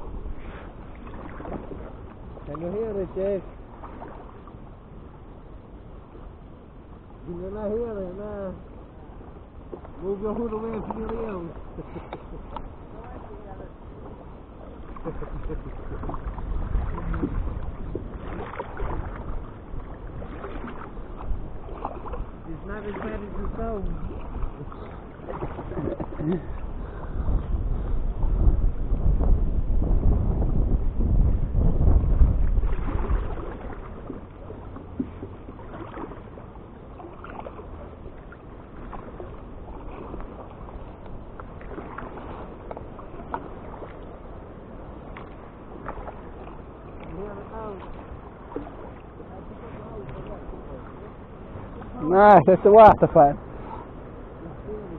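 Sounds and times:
water lapping against kayak hull: 0.0s - 54.9s
steady low rumble: 14.9s - 35.3s.

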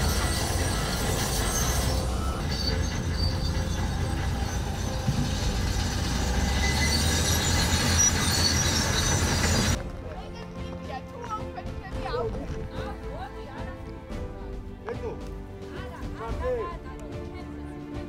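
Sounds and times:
thin high squeaks: 0.0s - 9.8s
diesel engines rumbling: 0.0s - 10.4s.

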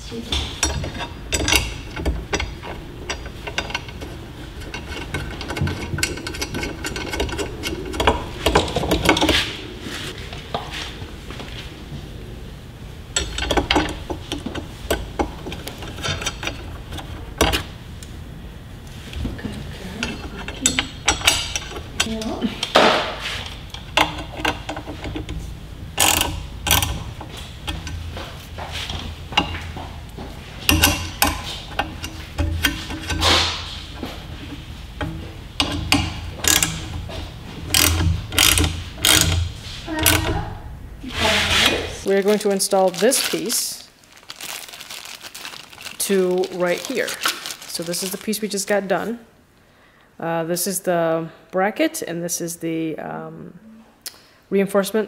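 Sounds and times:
metal parts clicking and rattling: 0.2s - 9.6s, 13.1s - 17.7s, 19.2s - 40.6s, 41.6s - 48.4s.

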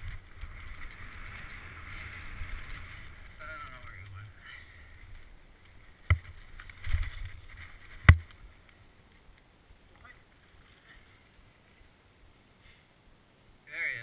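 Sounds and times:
mountain bike rolling on dirt: 0.0s - 9.3s.

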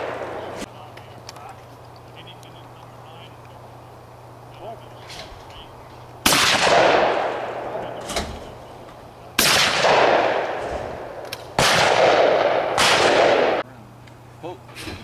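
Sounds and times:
shotgun blasts with echo: 0.0s - 0.7s, 6.2s - 8.5s, 9.4s - 13.6s.

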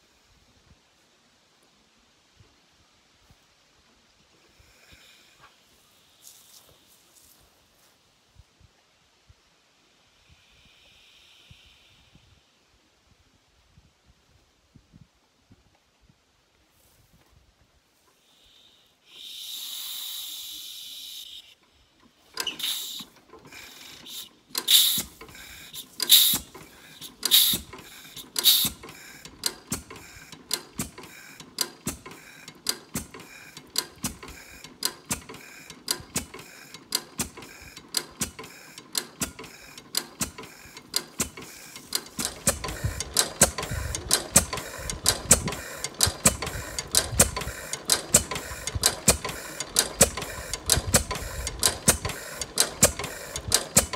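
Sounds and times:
short hiss: 4.4s - 7.6s, 18.0s - 21.6s, 22.2s - 53.8s
engine mechanical clatter: 22.0s - 53.9s.

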